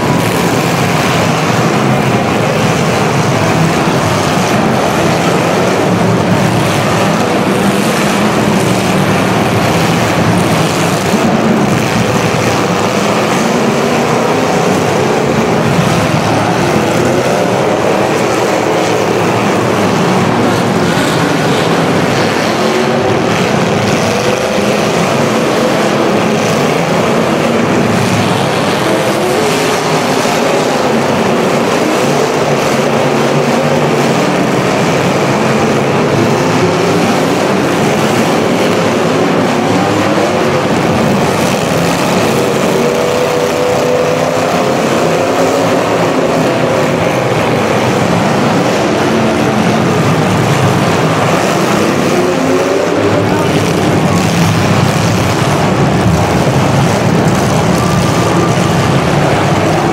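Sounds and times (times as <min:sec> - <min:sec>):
car engines revving: 0:00.0 - 0:59.9.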